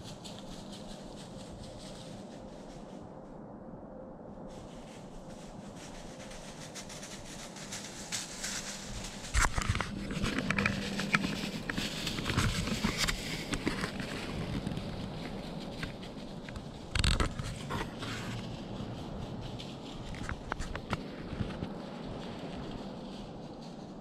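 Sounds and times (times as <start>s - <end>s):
clothing and dry brush rustling: 0.0s - 3.2s, 4.5s - 24.0s.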